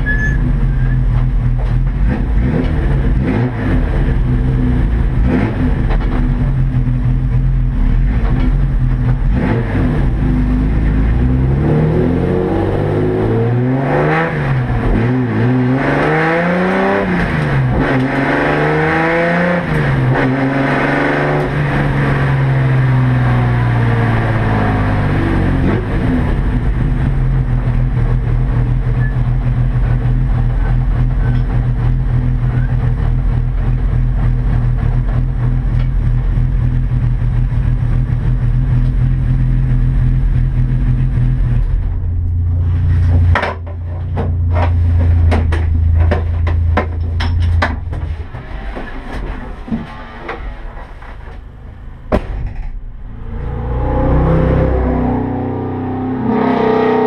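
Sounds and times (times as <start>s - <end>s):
race car engine: 0.0s - 57.0s
sharp clicks and knocks: 41.5s - 51.5s, 52.1s - 53.0s.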